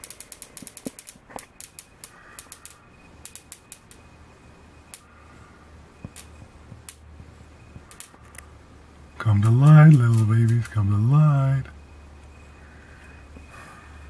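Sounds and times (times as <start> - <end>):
bug zapper snapping: 0.0 - 4.1, 4.9 - 5.1, 6.0 - 7.0, 7.8 - 8.4, 9.3 - 10.8
low steady hum: 0.0 - 14.0.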